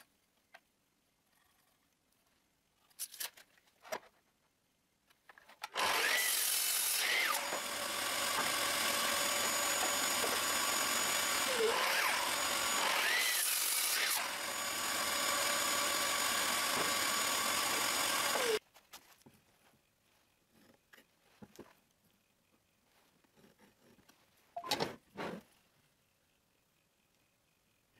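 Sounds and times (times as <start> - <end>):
miter saw cutting wood: 5.7 - 18.6.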